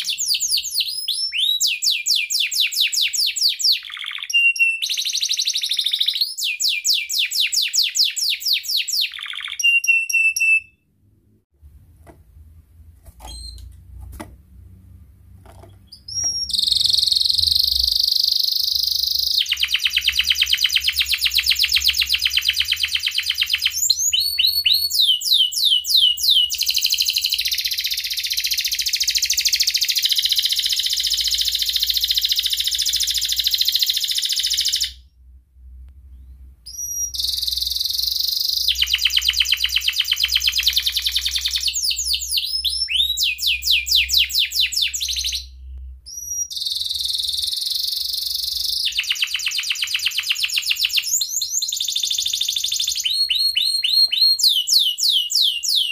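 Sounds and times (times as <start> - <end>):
canary singing trills: 0.0 - 10.8, 15.8 - 35.0, 36.2 - 55.9.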